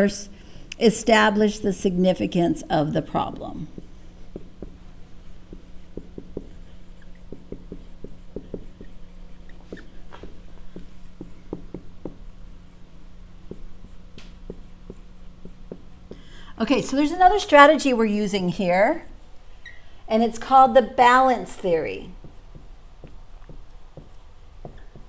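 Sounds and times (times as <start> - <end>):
steady low hum: 0.0 - 25.0
marker squeaking on whiteboard: 3.5 - 16.2, 19.6 - 19.9, 21.5 - 25.0.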